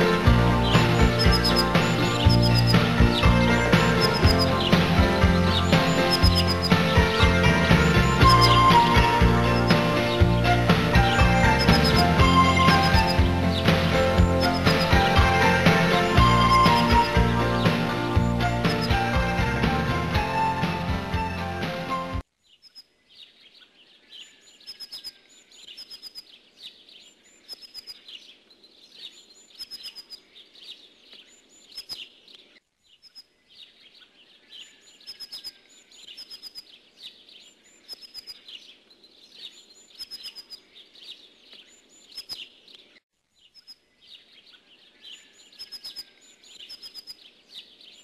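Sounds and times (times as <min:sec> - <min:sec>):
songbirds twittering: 0:00.0 - 0:20.6, 0:22.3 - 0:48.0.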